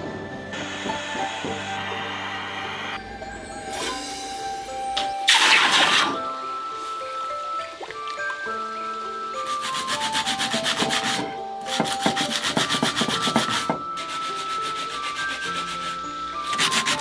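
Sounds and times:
light background music: 0.0 - 17.0
sandpaper rubbing on metal: 9.5 - 17.0.

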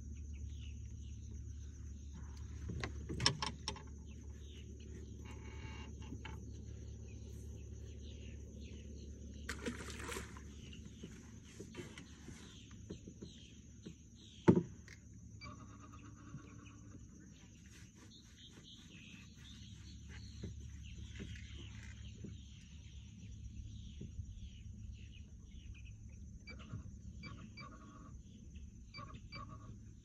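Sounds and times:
steady high-pitched hum: 0.0 - 12.8
birds chirping: 0.1 - 14.6, 16.4 - 29.5.

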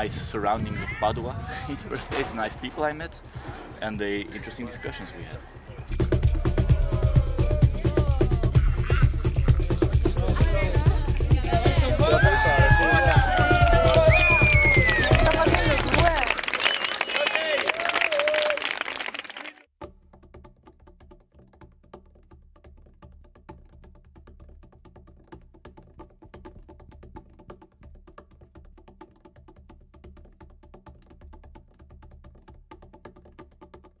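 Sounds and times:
people cheering and calling out: 3.5 - 19.6.

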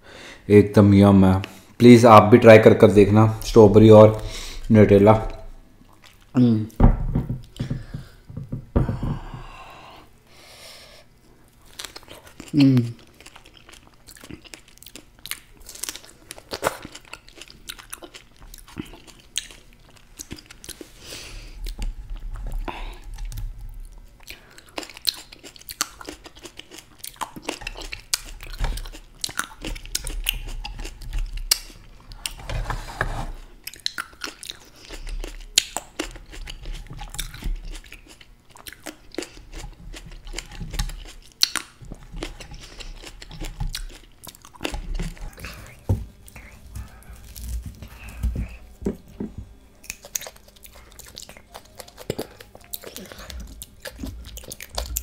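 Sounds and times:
chewing fresh fruit: 11.5 - 32.4, 33.5 - 55.0.

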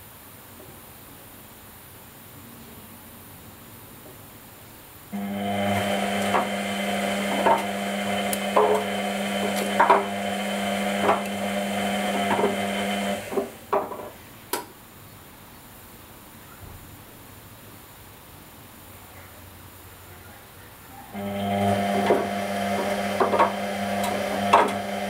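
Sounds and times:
washing machine motor hum: 5.1 - 14.2, 21.1 - 25.0.

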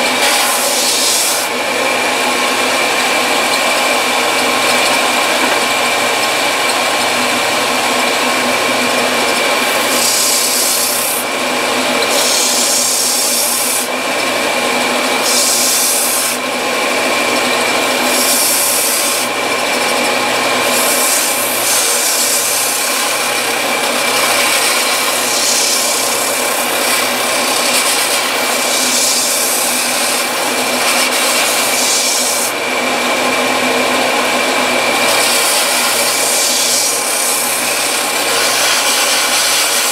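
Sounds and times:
rasping hiss of sanding wood: 0.0 - 2.0, 9.4 - 11.3, 12.1 - 13.9, 15.2 - 16.4, 17.9 - 19.3, 20.6 - 32.6, 34.9 - 39.9
belt sander motor whine: 0.0 - 39.9.

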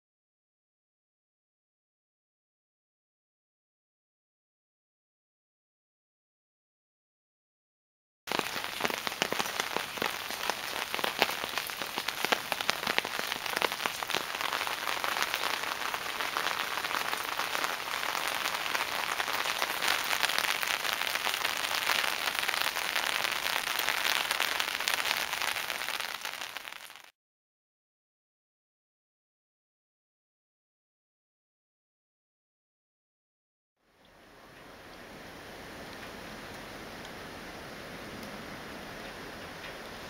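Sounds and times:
rain drops splashing in puddles: 8.3 - 27.1, 33.8 - 40.0.

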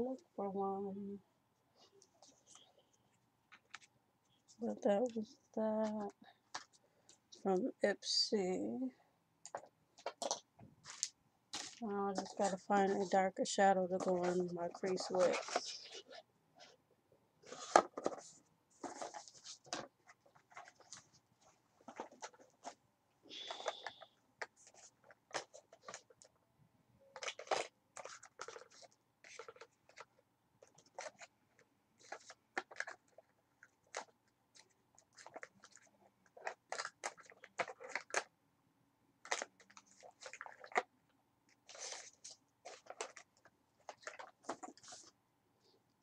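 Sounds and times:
plastic cases clicking and clattering: 9.4 - 12.4.

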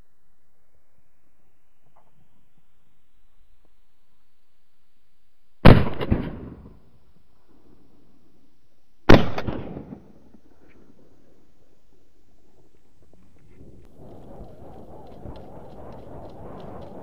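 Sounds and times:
shotgun shots echoing: 5.6 - 6.8, 9.1 - 10.2.

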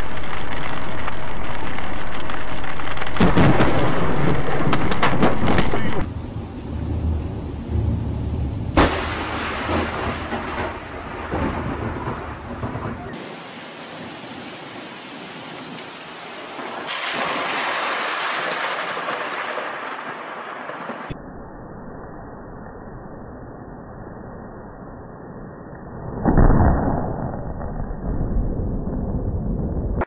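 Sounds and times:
sharp thunderclap: 0.0 - 14.0, 16.4 - 21.2
rumbling thunder: 0.0 - 14.4, 16.3 - 21.2
rain: 0.0 - 21.2.

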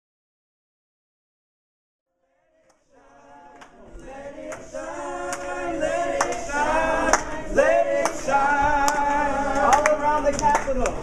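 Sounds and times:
group of people singing: 2.1 - 10.4
hand claps: 4.4 - 7.4, 8.0 - 11.0.

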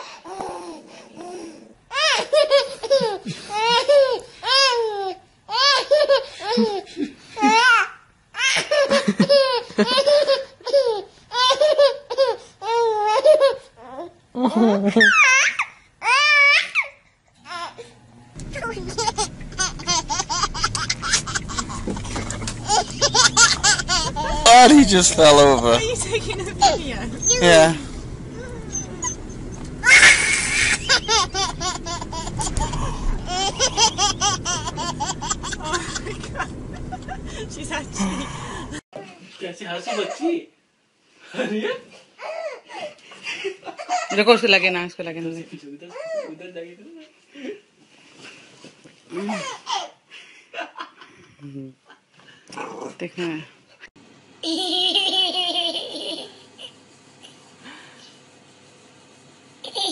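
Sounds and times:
baby laughing: 0.3 - 13.7, 18.6 - 27.7, 29.8 - 37.4, 54.4 - 56.8, 59.6 - 59.9
loud burst of noise: 29.2 - 38.8.

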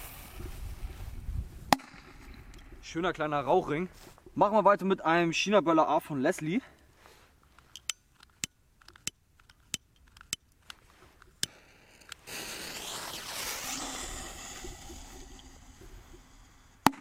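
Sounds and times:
firecracker fuse hissing: 0.0 - 0.6, 11.8 - 16.9.

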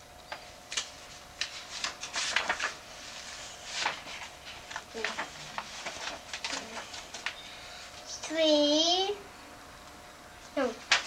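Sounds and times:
book pages turning: 0.3 - 7.4.

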